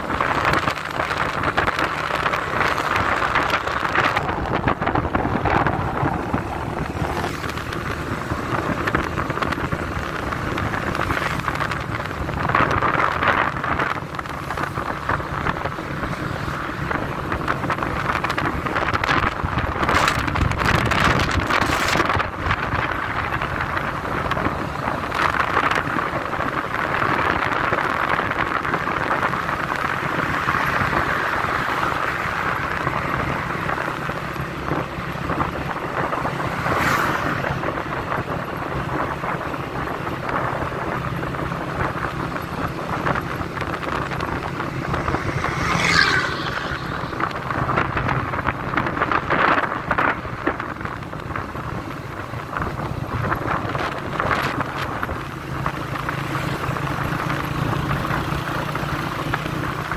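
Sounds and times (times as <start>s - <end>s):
vehicle engine and tyres hum: 0.0s - 59.9s
wind rushing over microphone: 0.0s - 59.9s
brief falling tone: 45.4s - 47.4s.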